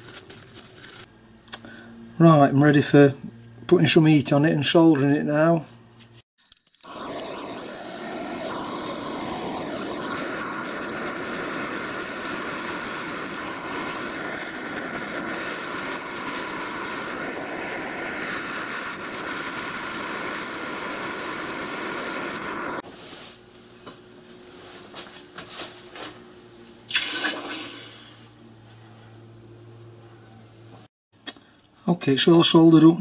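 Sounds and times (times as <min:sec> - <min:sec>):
blowtorch flame roaring: 0:06.8 - 0:24.0, 0:26.9 - 0:28.4.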